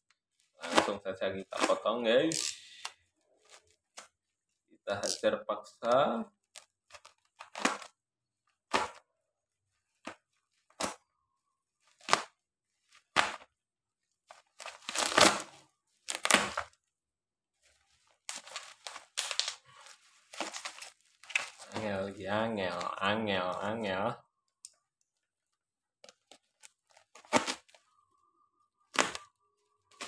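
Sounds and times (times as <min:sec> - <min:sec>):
plastic wrap tearing: 0:00.6 - 0:02.8, 0:14.3 - 0:16.8, 0:17.7 - 0:22.0, 0:26.1 - 0:27.8, 0:28.9 - 0:29.3
knife slitting plastic packaging: 0:14.6 - 0:16.7, 0:18.2 - 0:21.8, 0:26.9 - 0:27.8.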